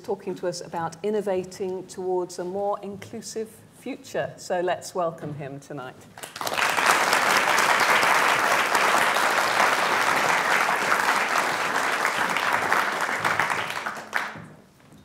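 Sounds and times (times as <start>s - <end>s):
audience applauding: 6.2s - 14.5s.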